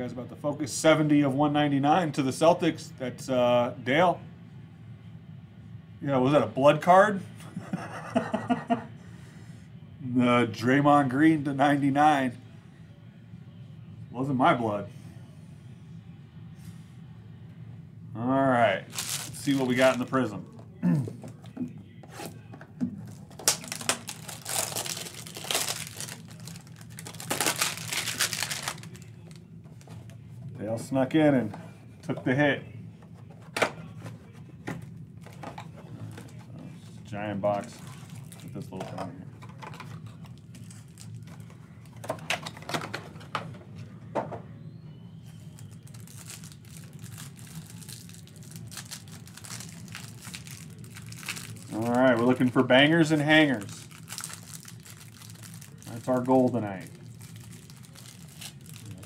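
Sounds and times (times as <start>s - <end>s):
plastic wrapping crinkling: 18.9s - 20.2s, 23.0s - 30.1s, 37.5s - 38.7s, 39.4s - 42.7s, 45.4s - 59.0s.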